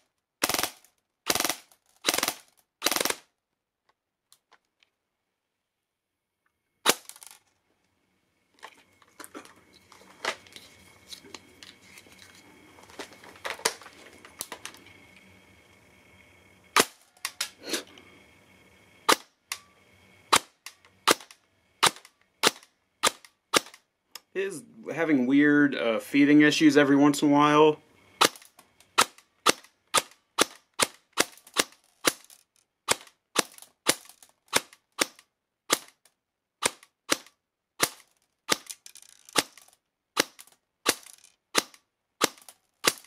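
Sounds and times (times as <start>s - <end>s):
airsoft gun shots: 0.4s - 3.2s, 20.3s - 23.8s, 28.2s - 28.4s
rattling and clicking of handling: 8.6s - 14.8s, 37.9s - 39.8s, 40.4s - 41.4s.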